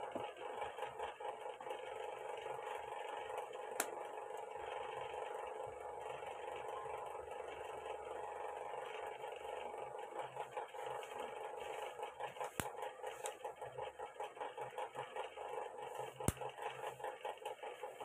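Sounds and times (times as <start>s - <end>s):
pulsing mechanical hum: 0.0s - 18.0s.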